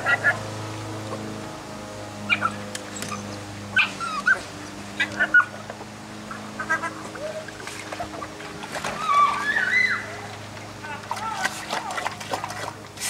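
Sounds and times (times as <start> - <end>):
dog whining and yipping: 2.3 - 4.4.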